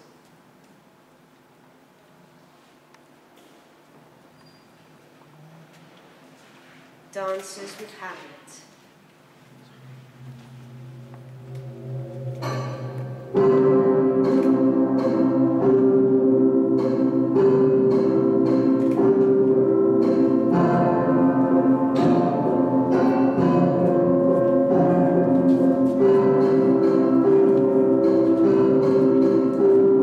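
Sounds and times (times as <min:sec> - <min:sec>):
slow instrumental music: 0:09.7 - 0:30.0.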